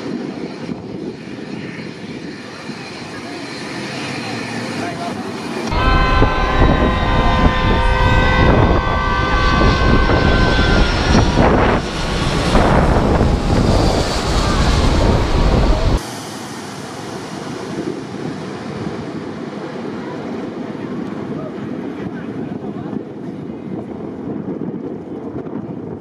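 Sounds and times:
rush of jet noise: 0.0 - 20.3
high engine whine: 0.0 - 21.9
jet airliner passing overhead: 0.0 - 25.2.

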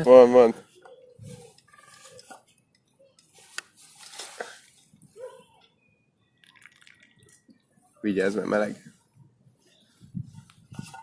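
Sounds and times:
flask and gourd clinking: 6.4 - 7.5.

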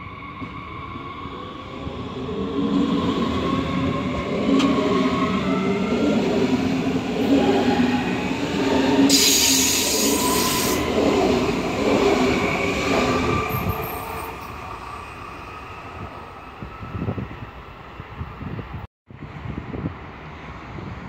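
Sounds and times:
train wheels rumbling on rail: 1.7 - 14.9
hissing rush: 8.8 - 11.0.

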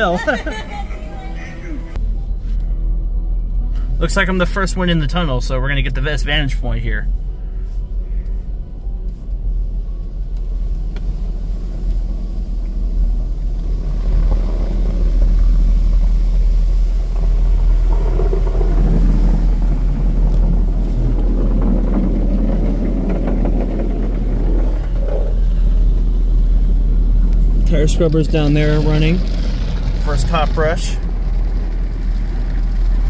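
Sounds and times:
low rumble inside car: 0.0 - 33.0
car wash brushes scrubbing: 11.1 - 32.8.

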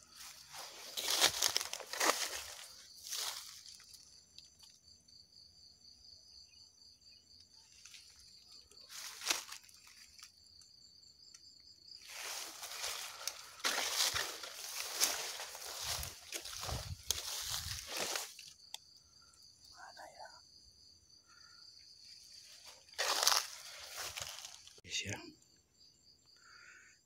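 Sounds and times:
footsteps rustling through undergrowth: 0.0 - 4.2, 7.8 - 10.3, 12.0 - 18.6, 22.0 - 24.8.

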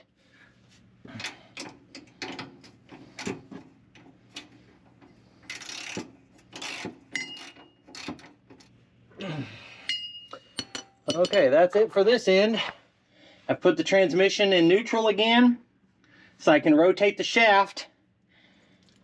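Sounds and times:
tools and bolts clinking: 5.5 - 8.7, 9.9 - 11.5
metallic ring: 7.1 - 7.8, 9.9 - 11.4.

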